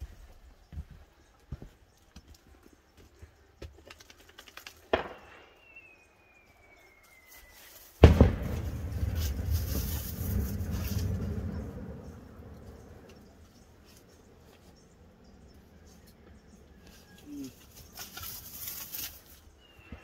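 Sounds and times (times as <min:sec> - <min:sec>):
firework rocket crack: 0:07.9 - 0:12.3
firework bang: 0:08.0 - 0:11.9
rumble: 0:08.1 - 0:16.6.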